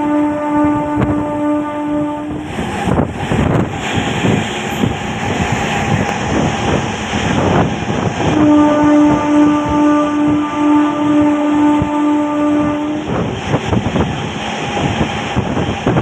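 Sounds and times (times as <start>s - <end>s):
moving train running noise: 0.0s - 16.0s
wind on microphone: 0.0s - 16.0s.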